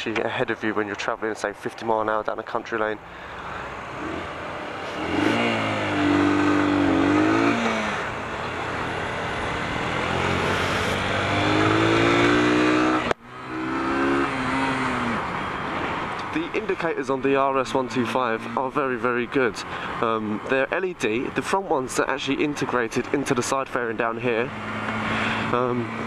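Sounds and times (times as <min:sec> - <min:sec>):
motorcycle engine accelerating: 0:03.7 - 0:18.9, 0:24.3 - 0:26.0.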